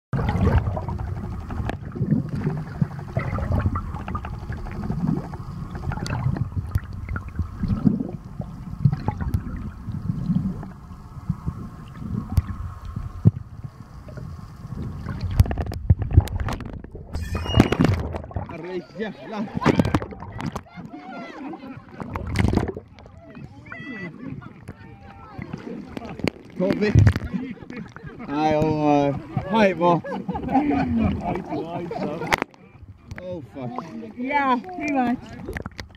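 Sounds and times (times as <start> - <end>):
underwater sloshing and gurgling: 0.1 - 35.9
bubbling hiss: 0.2 - 20.7.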